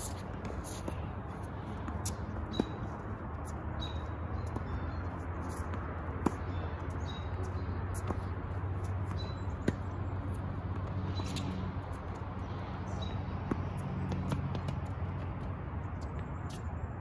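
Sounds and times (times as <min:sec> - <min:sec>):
birds chirping: 0:02.0 - 0:10.4.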